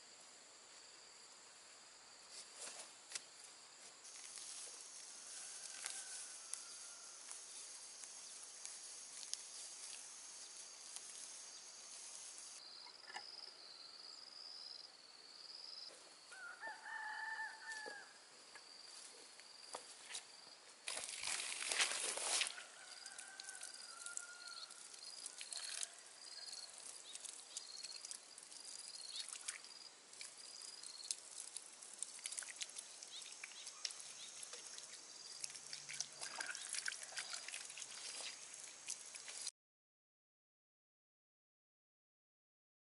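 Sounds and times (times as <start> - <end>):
high insect trill: 2.1 - 39.5
distant rooster crowing: 5.1 - 7.4, 16.3 - 18.3, 22.3 - 26.6.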